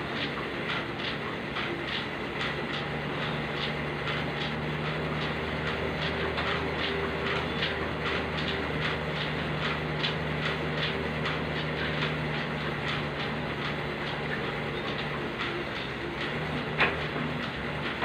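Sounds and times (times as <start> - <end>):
cross-trainer mechanical hum: 0.0 - 18.0
rapid mechanical clicks: 0.0 - 18.0.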